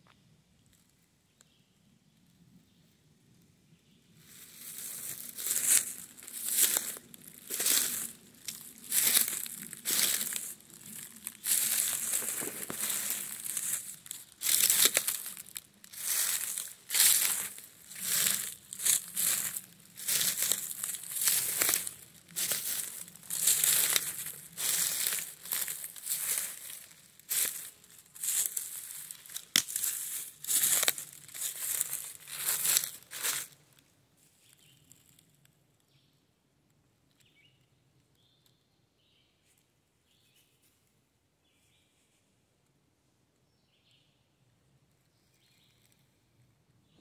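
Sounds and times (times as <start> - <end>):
footsteps crunching dry leaves: 4.2 - 33.6.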